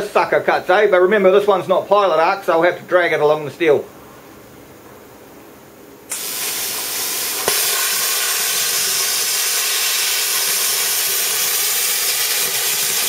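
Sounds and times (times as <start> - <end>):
plasma torch hissing: 6.1 - 13.0.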